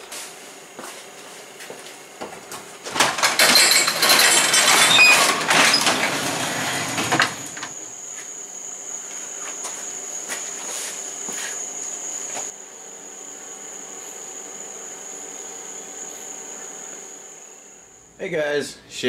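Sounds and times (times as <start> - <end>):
garage door rattling open: 2.8 - 7.8
crickets chirping: 3.6 - 18.4.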